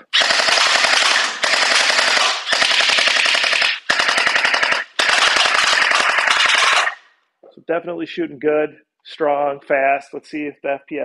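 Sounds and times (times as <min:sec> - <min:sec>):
gel ball blaster firing bursts: 0:00.0 - 0:07.1.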